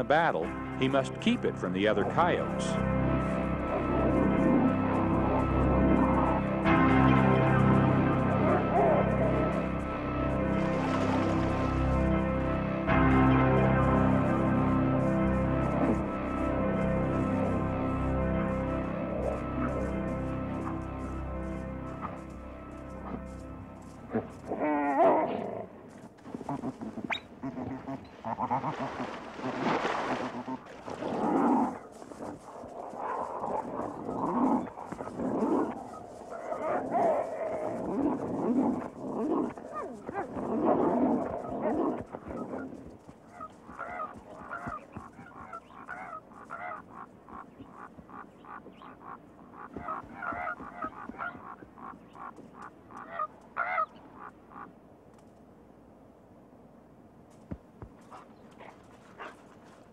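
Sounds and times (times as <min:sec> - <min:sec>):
coyotes growling and snarling: 0:02.0 - 0:12.4, 0:13.2 - 0:17.6, 0:18.2 - 0:23.4, 0:24.0 - 0:54.6, 0:58.0 - 0:59.9
coyote yelping: 0:26.4 - 0:29.1, 0:33.0 - 0:54.7.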